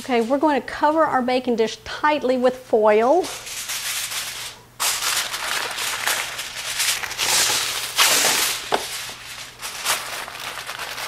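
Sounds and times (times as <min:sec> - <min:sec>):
aluminum foil crinkling: 0:03.3 - 0:11.0.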